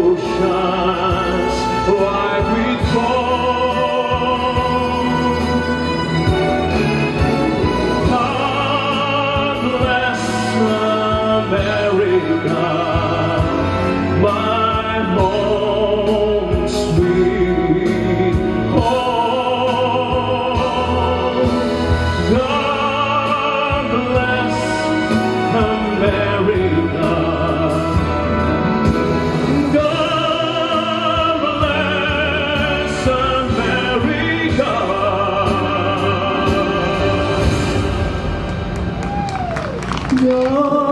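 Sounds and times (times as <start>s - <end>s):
man singing with vibrato: 0.0s - 38.4s, 40.1s - 40.9s
instrumental backing music: 0.0s - 40.9s.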